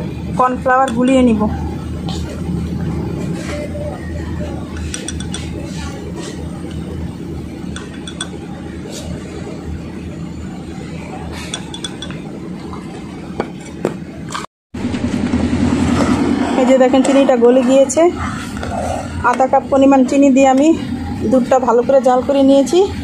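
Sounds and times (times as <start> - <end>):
steady low hum: 0.0 - 23.0
plastic spoon clicking on jar: 4.8 - 5.4, 11.6 - 12.2.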